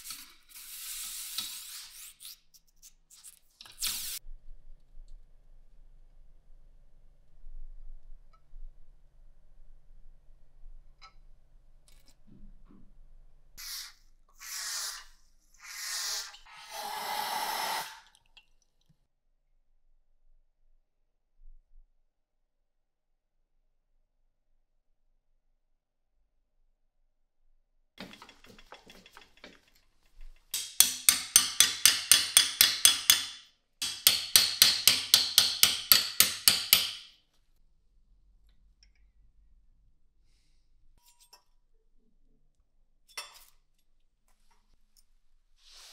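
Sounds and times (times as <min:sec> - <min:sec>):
aerosol spray can hissing: 0:00.0 - 0:02.2, 0:03.8 - 0:04.2, 0:13.6 - 0:18.0
hammer tapping steel punch: 0:30.5 - 0:37.1.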